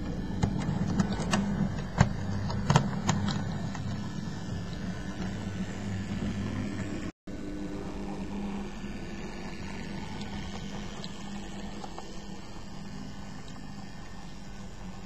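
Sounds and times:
model train motor humming: 0.0s - 15.0s.

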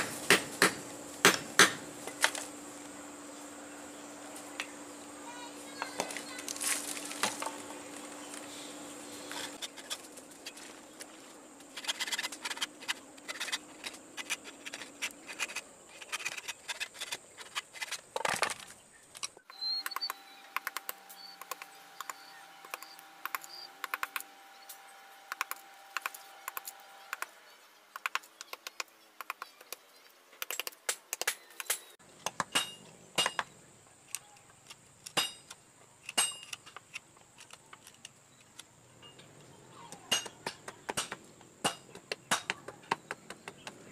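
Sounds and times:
file scraping wood: 11.7s - 18.1s.

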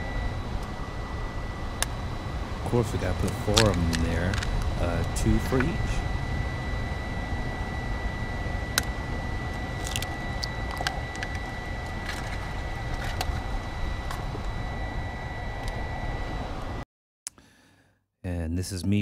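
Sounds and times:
thin high whine: 0.0s - 16.8s
water boiling in a pot: 8.7s - 13.8s.

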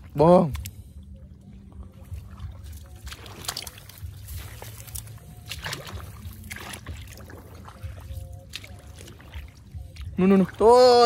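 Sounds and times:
muddy water sloshing: 0.0s - 11.0s
steady low rumble: 0.0s - 11.0s
short splashes: 2.0s - 11.0s.

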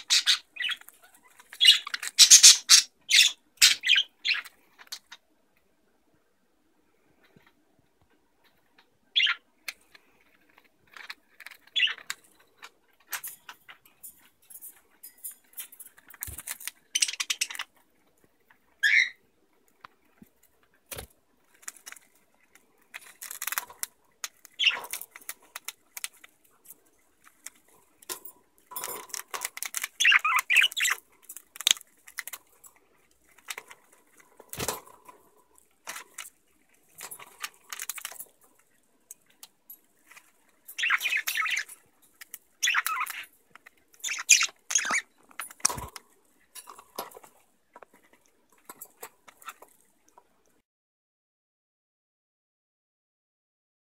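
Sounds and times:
budgies chirping: 0.0s - 5.2s, 9.2s - 9.4s, 11.0s - 12.1s, 16.9s - 17.7s, 18.8s - 19.2s, 24.6s - 25.6s, 28.8s - 31.0s, 40.8s - 41.8s, 42.6s - 43.3s, 44.0s - 46.0s
crackling and rustling of toy: 0.0s - 6.2s, 7.0s - 50.6s.

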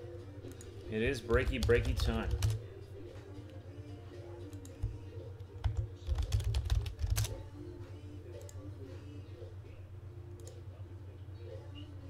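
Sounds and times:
steady low hum: 0.0s - 12.0s
keyboard typing: 1.3s - 2.6s, 5.6s - 7.4s.

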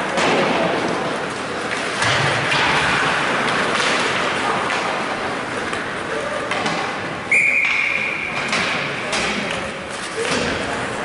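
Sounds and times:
hockey sticks and puck knocking: 0.0s - 7.0s, 7.6s - 10.9s
skates on ice: 0.0s - 11.0s
referee whistle blast: 7.3s - 8.1s.

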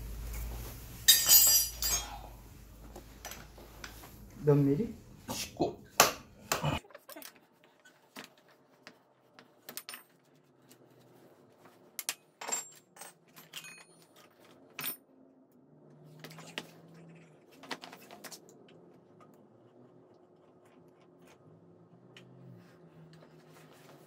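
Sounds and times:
wrench set on concrete floor: 1.1s - 2.1s
metal tools clinking: 1.1s - 2.2s, 12.4s - 15.0s.

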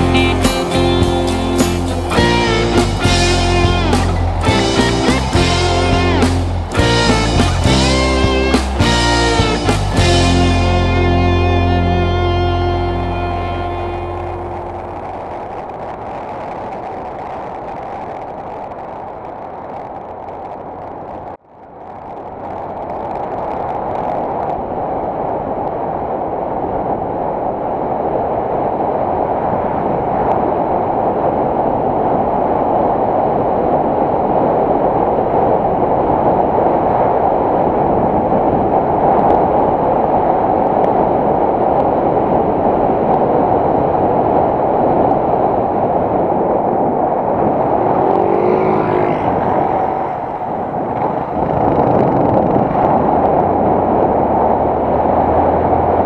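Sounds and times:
motorcycle road noise: 0.0s - 17.2s, 19.1s - 56.0s
wind rush: 0.0s - 56.0s.

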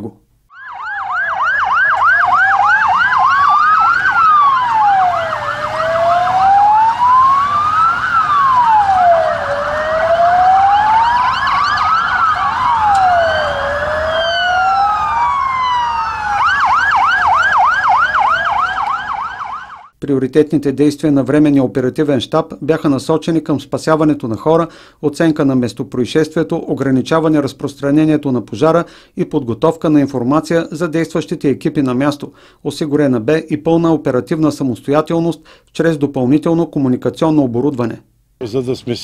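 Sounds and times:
second siren sweeping: 0.5s - 19.9s
siren fast yelp: 0.5s - 20.0s
siren slow wail: 0.5s - 20.0s.

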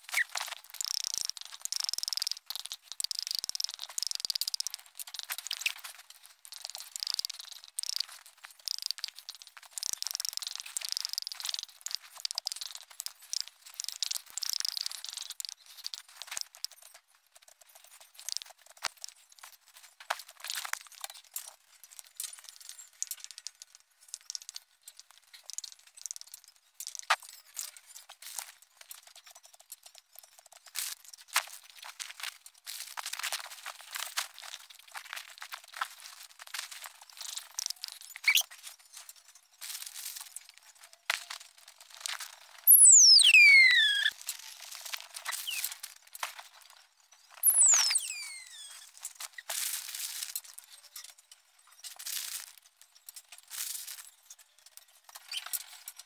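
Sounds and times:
sharp clicks: 0.0s - 5.8s.

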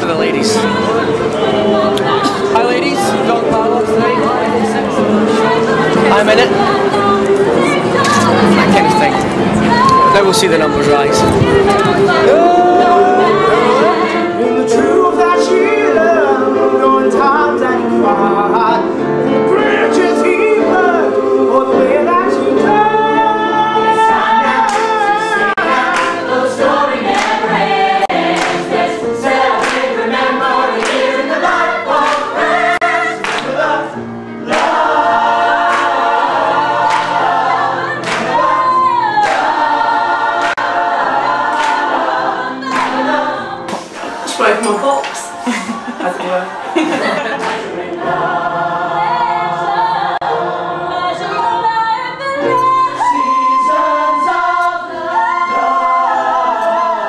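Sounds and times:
choir singing gospel song: 0.0s - 57.0s.

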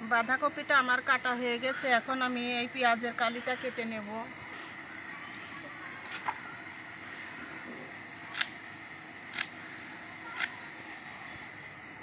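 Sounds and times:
knife slicing green onions: 10.4s - 10.6s.

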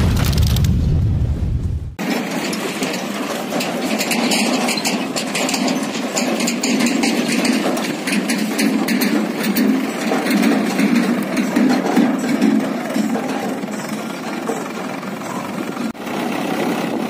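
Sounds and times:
deep low rumble: 0.0s - 2.0s
tractor diesel engine running: 1.9s - 17.0s.

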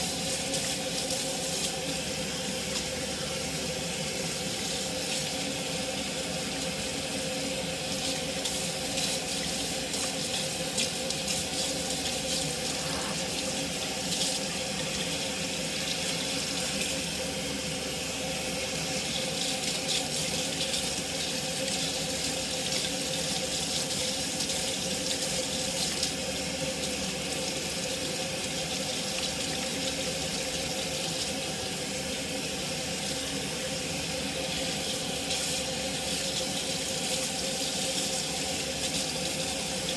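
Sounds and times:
faucet water running: 0.0s - 39.9s.

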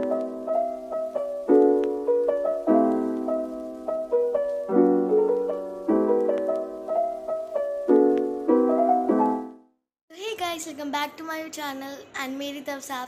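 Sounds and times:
keyboard chords and melody: 0.0s - 9.8s.

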